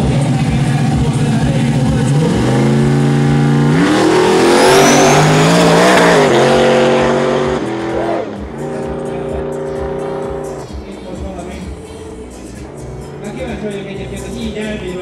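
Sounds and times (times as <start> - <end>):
background music: 0.0 - 15.0
car engine at full throttle: 0.0 - 15.0
tyre squeal: 4.6 - 6.4.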